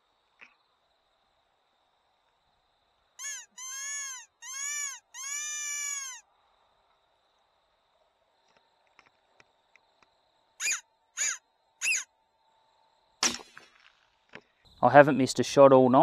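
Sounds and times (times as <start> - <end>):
predator whistle squeals: 3.2 - 6.2, 10.6 - 12.1.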